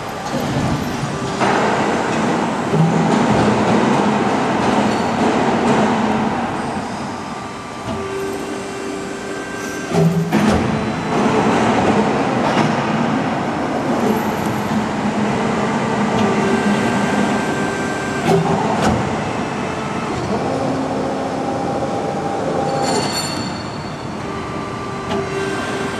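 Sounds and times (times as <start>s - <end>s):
machine clunks and clicks: 0.2s - 21.3s, 22.4s - 25.9s.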